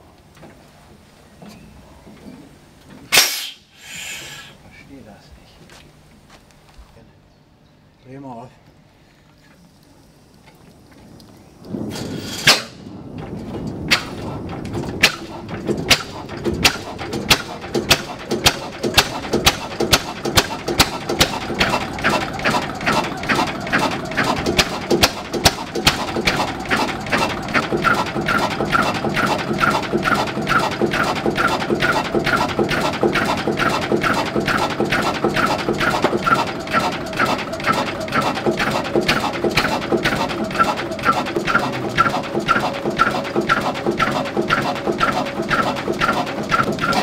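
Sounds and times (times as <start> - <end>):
diesel engine starting and running: 11.7 - 47.0.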